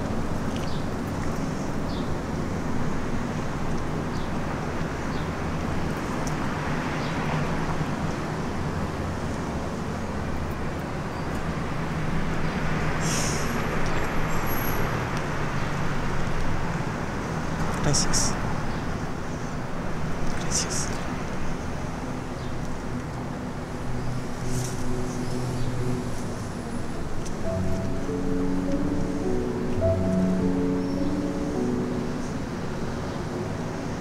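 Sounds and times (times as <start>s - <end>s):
street traffic hum: 0.0s - 34.0s
short hiss: 13.0s - 13.5s.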